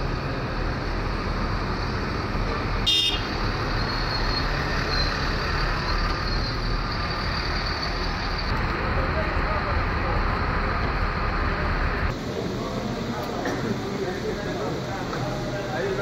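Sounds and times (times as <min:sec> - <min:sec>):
passing cars: 0:00.0 - 0:12.2
coach engines idling: 0:00.0 - 0:16.0
vehicle horn toot: 0:02.8 - 0:03.3.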